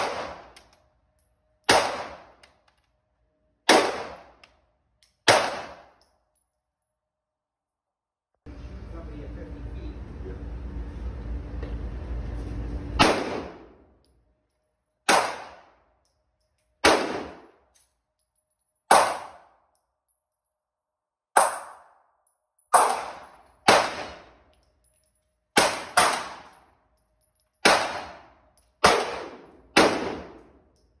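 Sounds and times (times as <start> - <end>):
pistol shots echoing: 0.0 - 0.6, 1.6 - 2.4, 3.7 - 4.4, 5.2 - 6.0, 13.0 - 13.8, 15.1 - 15.8, 16.8 - 17.6, 18.9 - 19.6, 22.7 - 24.4, 25.6 - 26.6, 27.6 - 30.6.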